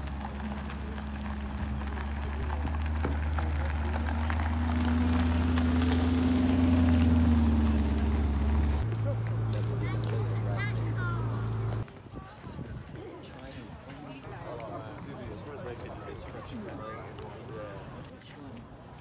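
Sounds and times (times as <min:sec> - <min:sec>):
car engine at low revs: 0:00.0 - 0:11.8.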